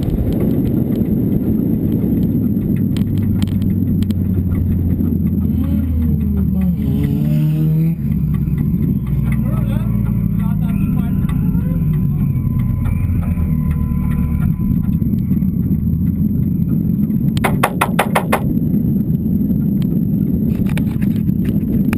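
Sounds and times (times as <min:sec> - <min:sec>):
car engine at low revs: 0:00.0 - 0:13.3.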